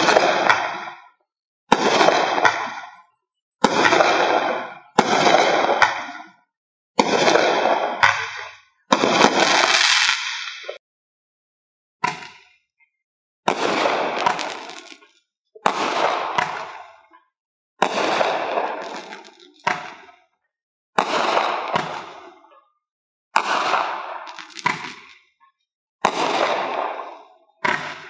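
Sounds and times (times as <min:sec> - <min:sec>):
firework shots banging: 0:00.0 - 0:06.4, 0:07.0 - 0:10.8, 0:13.5 - 0:17.2, 0:17.8 - 0:20.2, 0:21.0 - 0:22.4, 0:23.4 - 0:25.3, 0:26.0 - 0:28.0
firework crackling tail: 0:07.0 - 0:10.8, 0:13.5 - 0:15.1, 0:17.8 - 0:19.6, 0:23.4 - 0:25.2.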